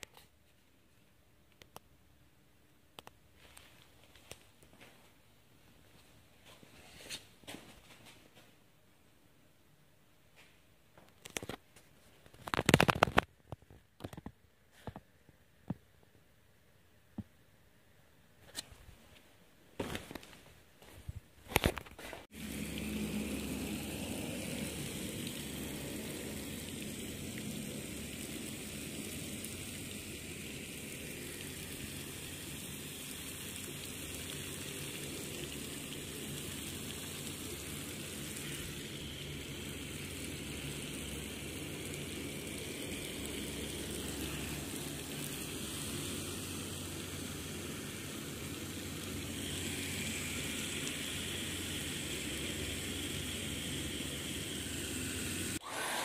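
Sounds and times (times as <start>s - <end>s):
water spray hissing and pattering: 22.2s - 56.0s.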